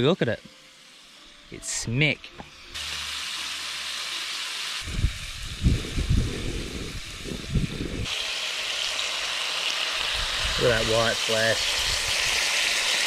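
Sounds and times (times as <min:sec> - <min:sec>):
fish sizzling in a frying pan: 0:00.0 - 0:13.0
wind buffeting microphone: 0:04.8 - 0:08.1.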